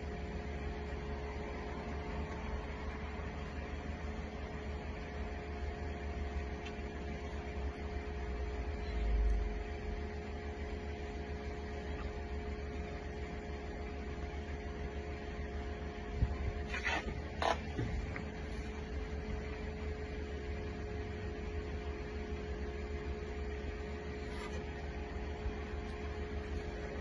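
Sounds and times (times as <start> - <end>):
steady hum with held tones: 0.0 - 27.0.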